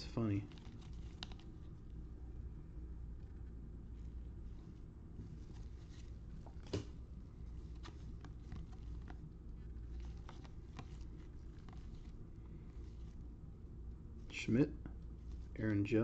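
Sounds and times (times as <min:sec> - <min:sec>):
low steady hum: 0:00.0 - 0:16.0
cards shuffling: 0:00.3 - 0:01.6, 0:05.3 - 0:13.2.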